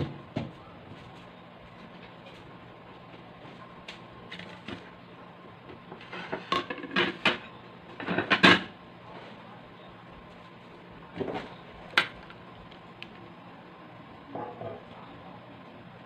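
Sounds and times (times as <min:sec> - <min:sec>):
plates clattering on a tabletop: 0:06.0 - 0:08.7.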